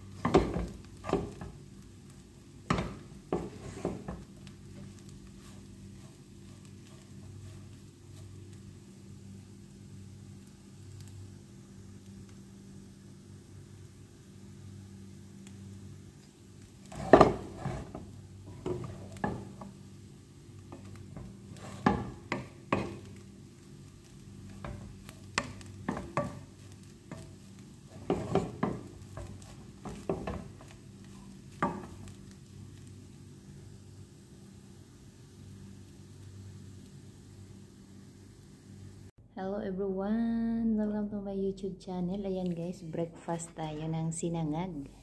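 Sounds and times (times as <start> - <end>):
wooden spatula scraping a wok: 0.0 - 9.0, 16.6 - 33.2
low steady hum: 0.0 - 45.0.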